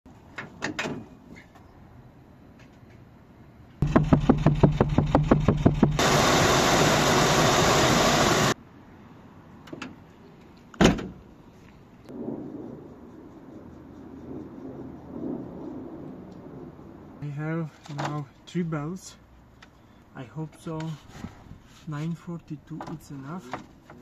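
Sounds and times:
sharp thump: 3.8s - 6.0s
car engine running: 3.8s - 8.6s.

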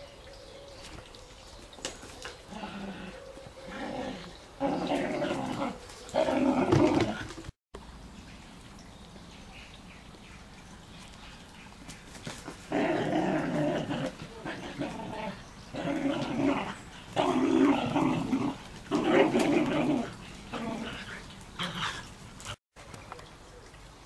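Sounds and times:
dog play-growling: 2.5s - 7.5s, 12.6s - 22.6s.

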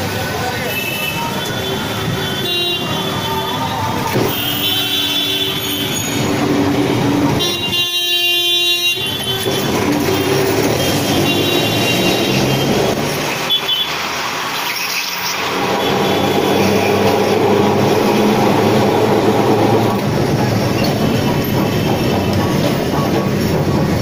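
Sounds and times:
busy street traffic: 0.0s - 24.0s
vehicle horns honking: 0.7s - 6.4s, 7.3s - 14.0s, 15.4s - 20.2s.

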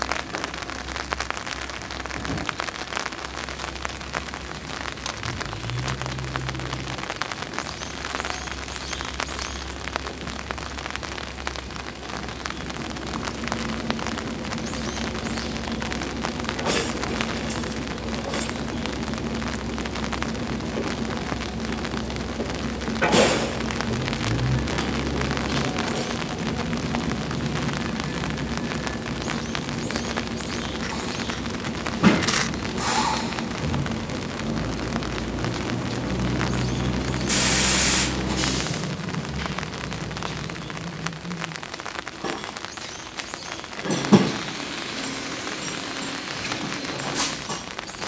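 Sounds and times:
steady rain falling: 0.0s - 48.0s
water drips and clicks: 0.0s - 48.0s
train engine humming: 9.7s - 41.6s
compressed air burst: 16.6s - 17.1s, 23.0s - 23.6s, 32.8s - 33.5s, 37.2s - 38.8s
short air hiss: 32.8s - 33.3s, 37.3s - 38.7s.

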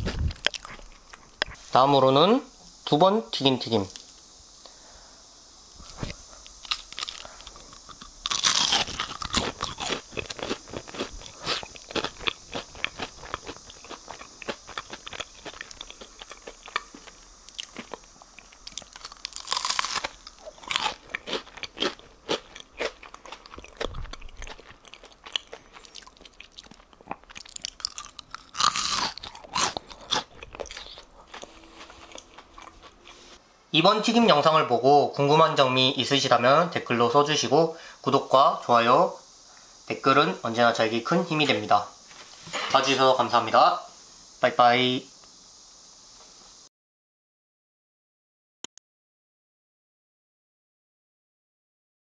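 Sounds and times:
crunchy food bitten and chewed: 0.0s - 1.6s, 5.8s - 33.4s.

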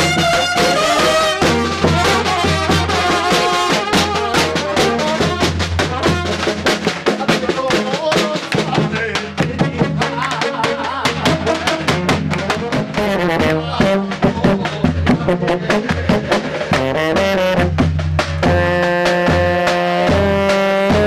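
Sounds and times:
brass band horns: 0.0s - 7.2s, 11.2s - 21.0s
pounding bass drum: 0.0s - 21.0s
snare drum: 0.0s - 21.0s
hand-clapping: 5.8s - 13.1s, 15.7s - 16.9s.

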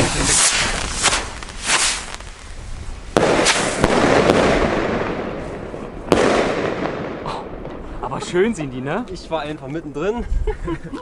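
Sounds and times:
lighter firework cracks: 0.0s - 7.9s
rocket bangs with rumbling echo: 3.1s - 8.0s.

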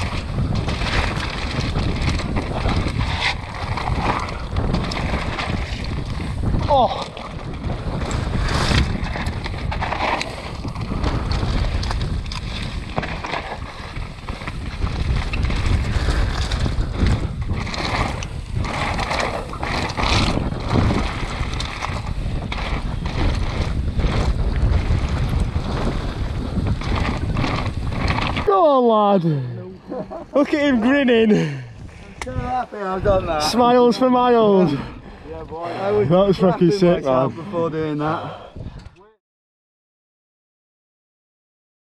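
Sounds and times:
bike knocking and rattling: 0.0s - 28.6s
bike tyres rolling on gravel: 0.0s - 38.0s
wind buffeting microphone: 0.0s - 39.2s.

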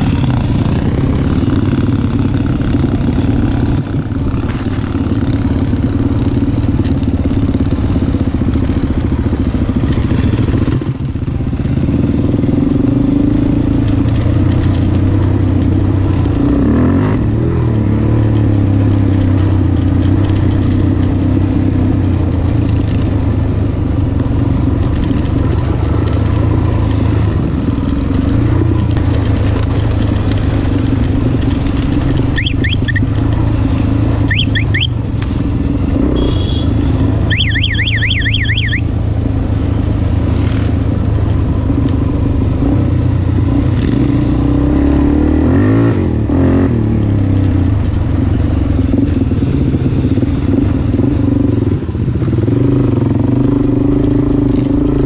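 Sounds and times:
motorcycle engine running: 0.0s - 55.0s
high fast warbling chirps: 32.4s - 33.1s, 34.3s - 34.9s, 37.3s - 38.9s.

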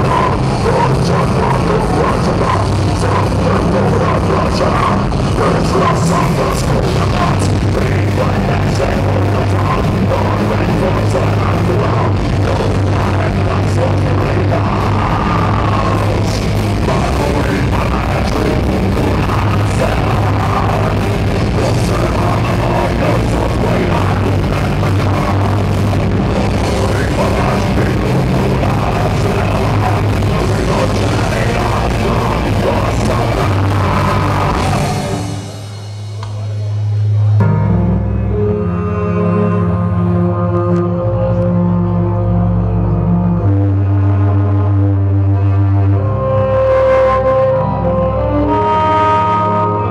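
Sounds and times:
person singing: 0.0s - 36.5s
heavy metal band playing: 0.0s - 49.9s.

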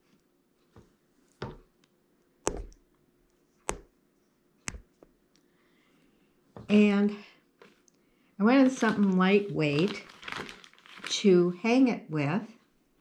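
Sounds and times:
taps on wooden tabletop: 1.4s - 1.7s.

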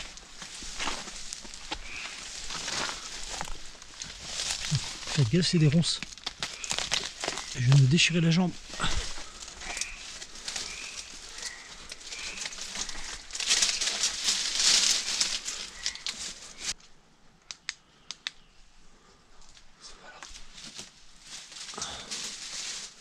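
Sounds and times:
undergrowth rustling and crackling: 0.0s - 17.0s, 19.2s - 23.0s
sharp snaps of twigs: 9.6s - 16.8s, 17.4s - 18.6s.

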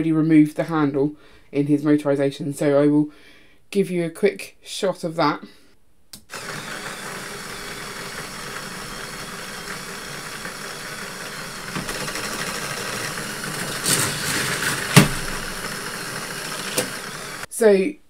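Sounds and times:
electric motor whirring with gear rattle: 6.3s - 17.5s
electric motor switch click: 13.6s - 17.4s.

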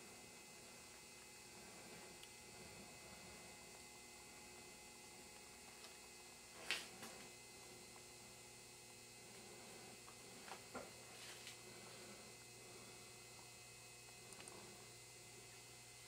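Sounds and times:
low electrical hum: 0.0s - 16.0s.

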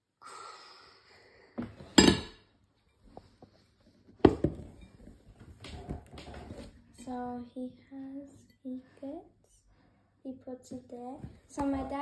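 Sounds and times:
glass and dishware clinking: 2.0s - 2.4s.

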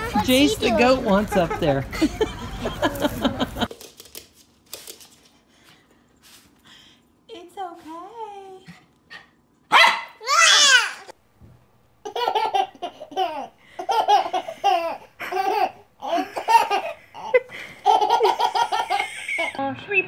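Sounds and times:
infant laughing: 12.0s - 19.6s.

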